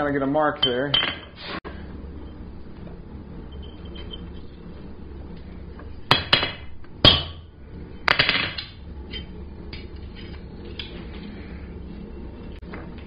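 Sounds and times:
hammer striking metal punch: 0:06.1 - 0:07.4.

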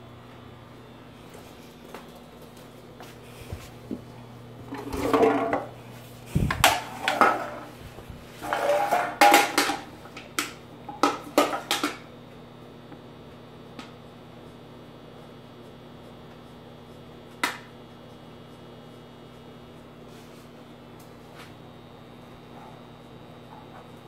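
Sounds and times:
can rattling across wooden floor: 0:04.7 - 0:05.7, 0:08.4 - 0:09.9.

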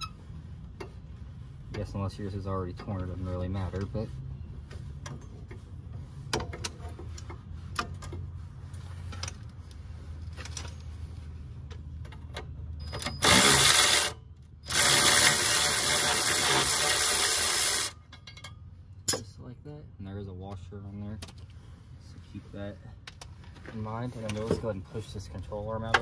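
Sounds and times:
cordless power tool running: 0:13.2 - 0:14.1, 0:14.7 - 0:17.9.

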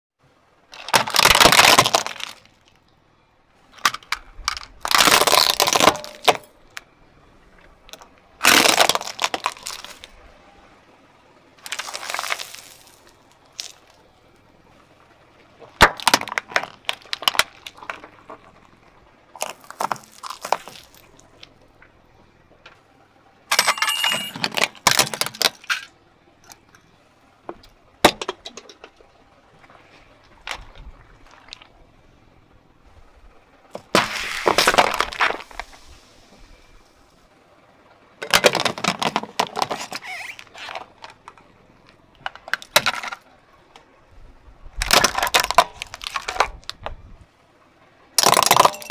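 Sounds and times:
tyre crushing plastic toys: 0:00.7 - 0:02.8, 0:03.7 - 0:06.5, 0:07.8 - 0:10.2, 0:11.6 - 0:13.9, 0:15.6 - 0:18.8, 0:19.4 - 0:21.5, 0:23.5 - 0:25.9, 0:28.0 - 0:29.0, 0:33.7 - 0:35.8, 0:38.2 - 0:43.3, 0:44.8 - 0:47.0, 0:48.2 - 0:48.9.

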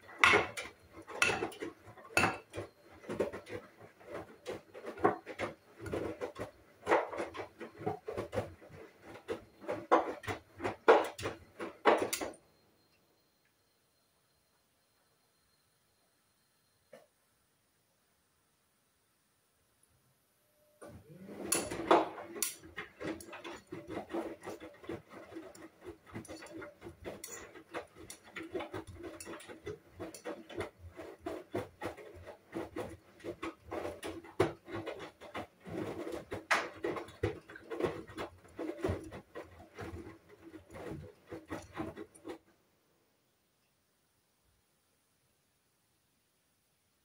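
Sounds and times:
washing machine drum hum: 0:00.0 - 0:12.5, 0:20.8 - 0:42.6
laundry splashing and thudding: 0:21.0 - 0:42.4.

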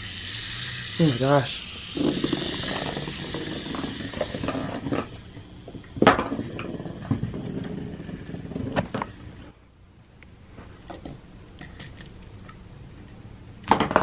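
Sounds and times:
toy motor buzzing and rattling: 0:00.0 - 0:09.5.

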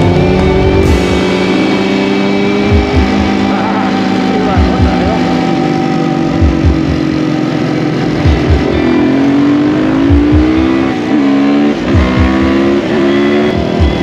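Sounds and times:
low thumps: 0:00.0 - 0:07.3, 0:08.1 - 0:09.1, 0:09.8 - 0:10.9
motorcycle engine pulling hard: 0:00.0 - 0:14.0.

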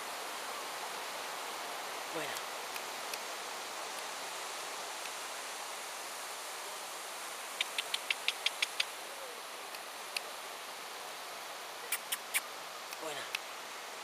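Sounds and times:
wind: 0:00.0 - 0:14.0
sharp clicks: 0:07.6 - 0:08.9.

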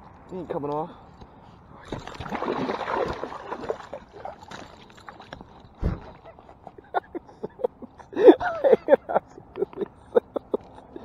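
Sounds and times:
small splashes: 0:01.8 - 0:06.6
fish thrashing and splashing: 0:01.9 - 0:06.6.

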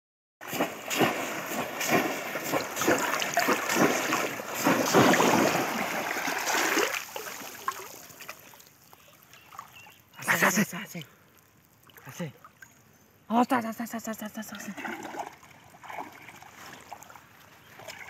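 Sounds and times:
fish traps splashing into water: 0:00.4 - 0:08.4.

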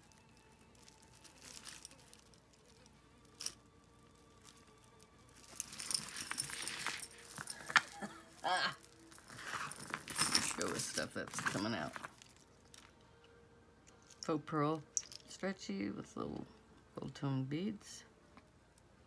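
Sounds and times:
jewelry clinking and jangling: 0:00.0 - 0:13.2, 0:13.8 - 0:15.6.

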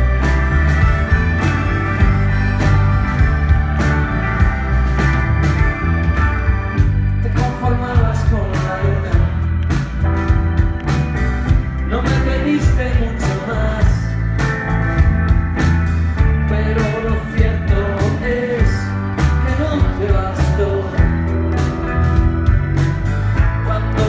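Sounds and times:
rock band playing: 0:00.0 - 0:24.0
person singing: 0:07.2 - 0:09.5, 0:11.9 - 0:14.1, 0:16.4 - 0:21.4, 0:23.5 - 0:24.0.

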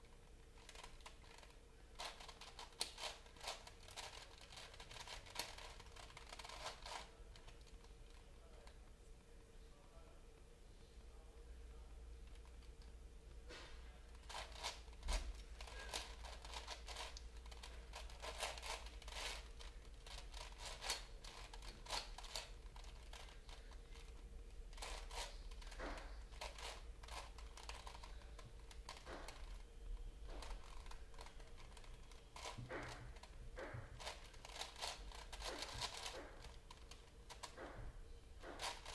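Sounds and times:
puzzle cube clicking: 0:00.6 - 0:07.6, 0:14.3 - 0:24.1, 0:34.0 - 0:37.6, 0:38.6 - 0:38.9.

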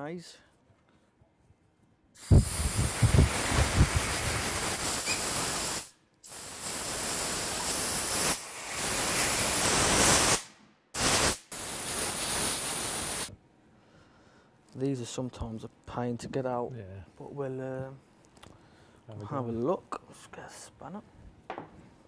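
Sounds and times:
compressed air blow gun hissing: 0:02.2 - 0:13.3.

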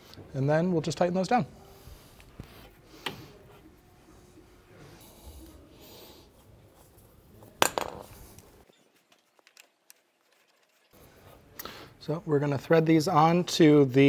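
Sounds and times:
faint rubbing of metal parts: 0:01.5 - 0:12.2.

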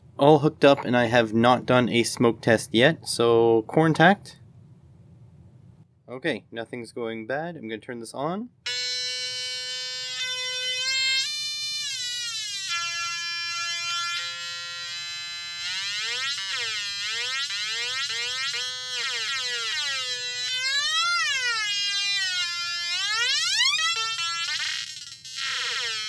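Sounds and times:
synth buzzing through small speaker: 0:08.7 - 0:26.0.

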